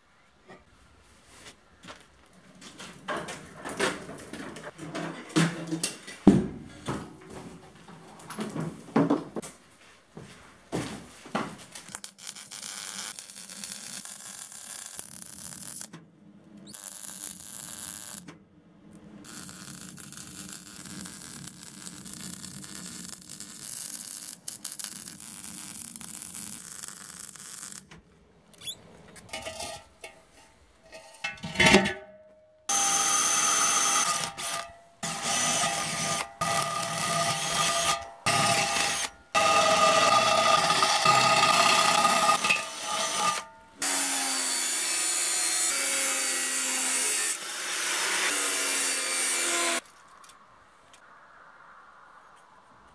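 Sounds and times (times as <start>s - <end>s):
welder hissing and crackling: 11.8s - 15.9s, 16.7s - 18.2s, 19.3s - 27.9s
cordless drill whining: 32.7s - 43.4s.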